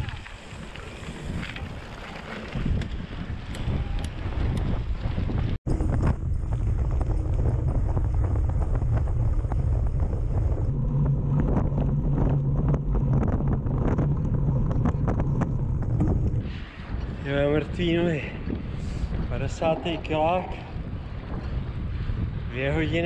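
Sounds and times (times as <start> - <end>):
bike clicks and rattles: 0.0 - 10.8
tyre rumble on asphalt: 0.0 - 16.4
wind buffeting microphone: 0.0 - 23.0
low hum: 2.5 - 23.0.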